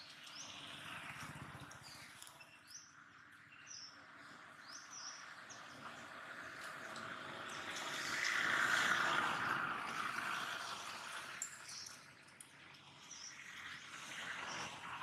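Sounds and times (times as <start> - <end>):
small birds chirping: 0.0 - 6.2, 11.4 - 12.2.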